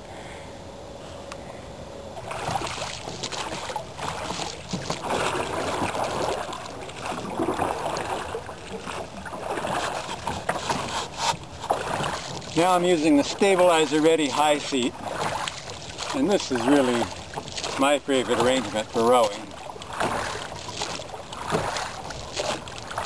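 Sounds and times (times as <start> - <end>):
oars splashing in water: 2.2 - 23.0.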